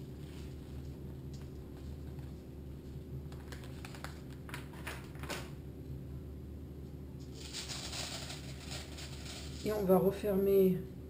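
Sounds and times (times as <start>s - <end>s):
steady low hum: 0.0s - 11.0s
plastic bag crinkling: 7.3s - 9.9s.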